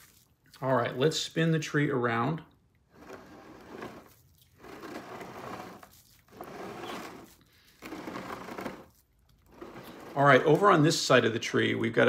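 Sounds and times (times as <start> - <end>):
pot grating scrape on stand: 2.9 - 10.8.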